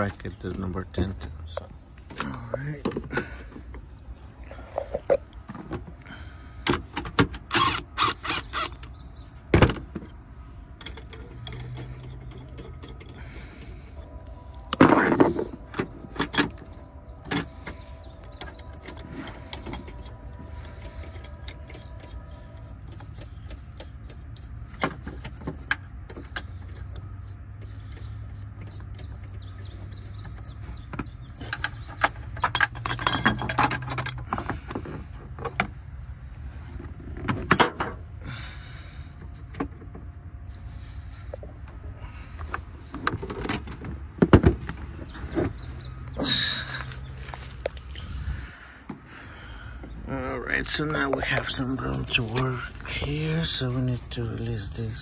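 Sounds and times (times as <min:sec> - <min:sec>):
metal bracket clattering: 0:31.0 - 0:34.4.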